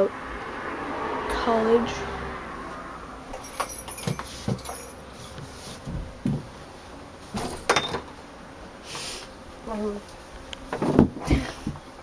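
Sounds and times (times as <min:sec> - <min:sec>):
light jingle: 0:03.3 - 0:05.1.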